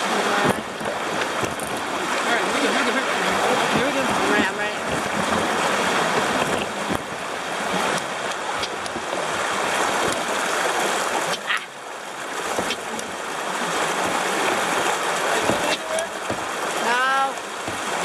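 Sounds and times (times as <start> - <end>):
paddle knocks and splashes: 0.0 - 18.0
rushing river water: 0.0 - 18.0.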